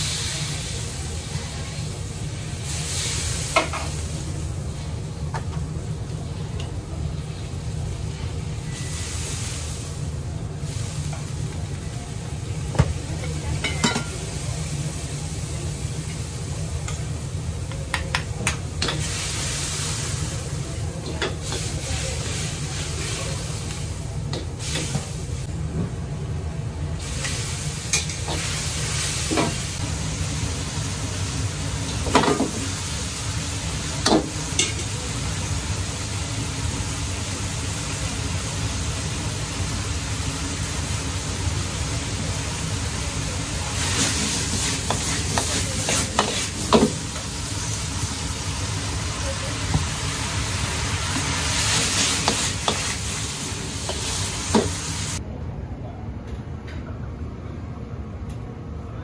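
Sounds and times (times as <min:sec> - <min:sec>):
vegetables sizzling: 0:00.0 - 0:25.7, 0:26.9 - 0:55.2
gas burner roar: 0:00.0 - 0:55.3.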